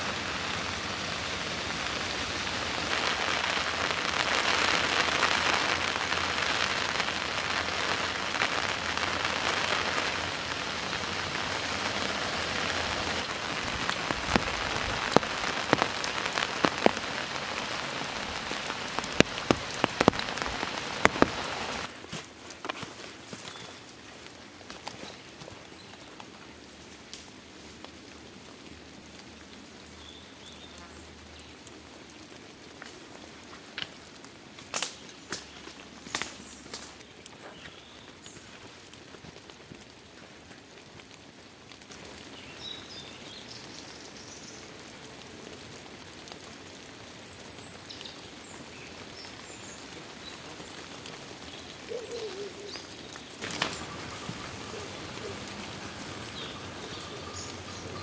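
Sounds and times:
loud single raindrops: 0.0 - 23.9, 41.3 - 58.0
heavy rain on leaves: 0.0 - 58.0
scattered drips: 12.7 - 21.9.

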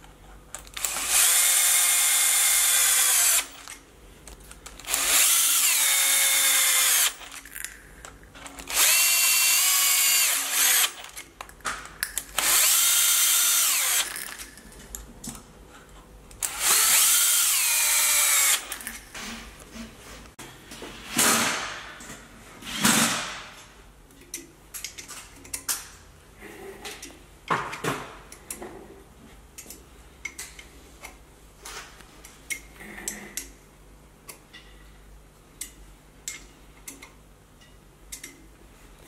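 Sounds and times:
small metallic clicks and taps: 24.1 - 25.9, 28.3 - 28.7, 29.6 - 31.2, 35.6 - 38.5.

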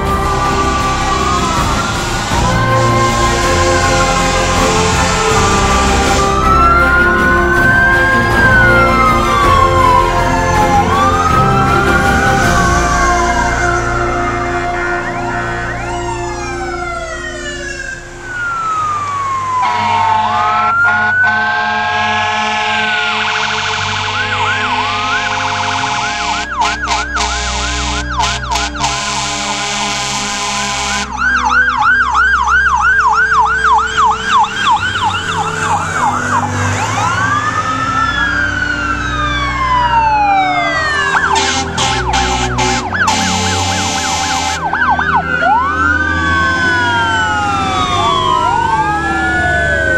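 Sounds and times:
air horn blasts: 0.0 - 9.6, 19.6 - 31.3, 41.1 - 44.8
diesel engines rumbling: 0.0 - 49.9
fire engine sirens wailing and yelping: 0.0 - 49.9.

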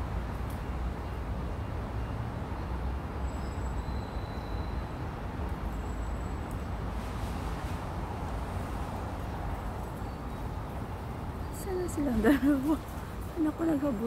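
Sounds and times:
faint high whistles: 3.2 - 5.0.

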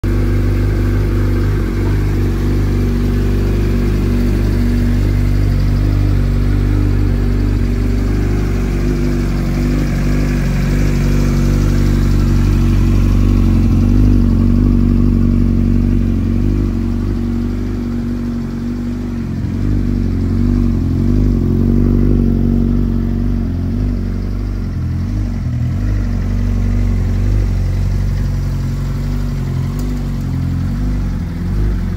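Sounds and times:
motorcycle engine idling: 0.0 - 31.9.

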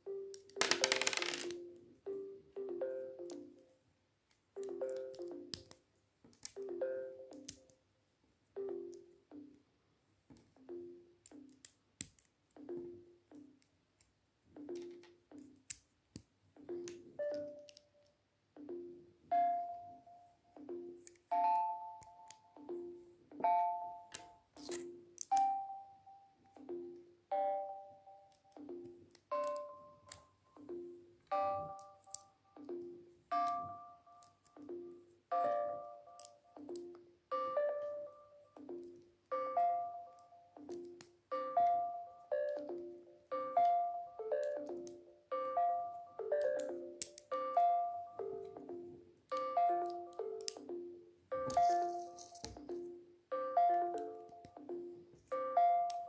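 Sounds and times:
light tune of ringing notes: 25.3 - 36.7.

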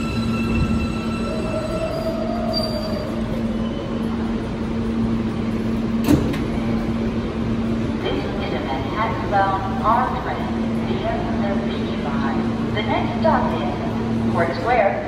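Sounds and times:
subway train rail rumble: 0.0 - 15.0.

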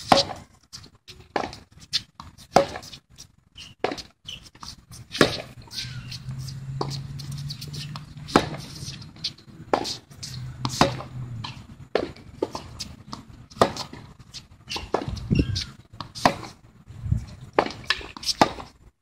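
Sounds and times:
tennis balls bouncing on court: 0.0 - 0.5, 1.3 - 3.0, 3.6 - 16.6, 17.4 - 18.8
tennis balls struck by rackets: 0.0 - 0.5, 1.2 - 3.0, 3.6 - 16.7, 17.4 - 18.8.

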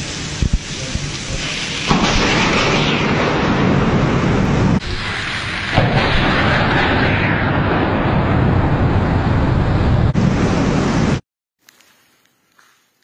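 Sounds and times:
heavy rain: 0.0 - 1.9
thunder crash: 1.3 - 11.2.

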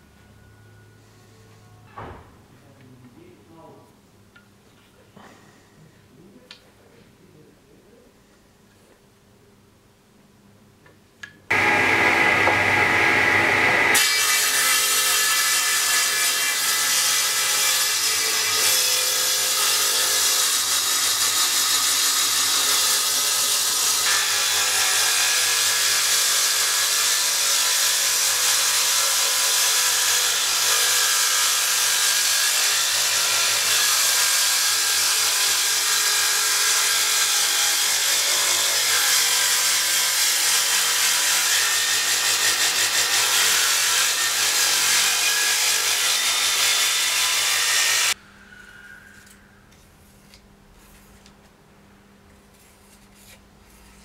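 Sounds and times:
table saw cutting wood: 11.5 - 48.2.

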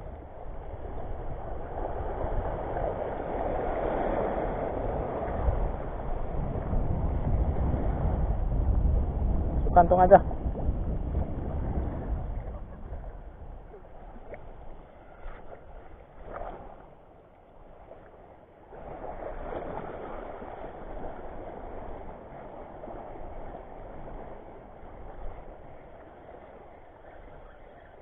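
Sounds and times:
wind rushing over microphone: 0.0 - 16.9, 18.7 - 28.0.

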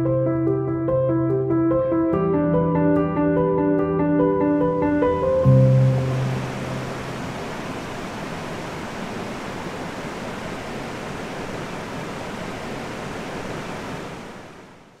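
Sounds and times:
steady rushing noise: 4.5 - 15.0.

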